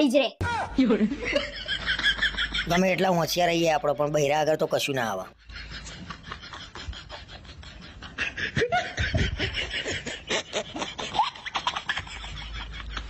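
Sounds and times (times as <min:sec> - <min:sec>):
laughter: 0:00.8 - 0:02.9, 0:05.4 - 0:13.0.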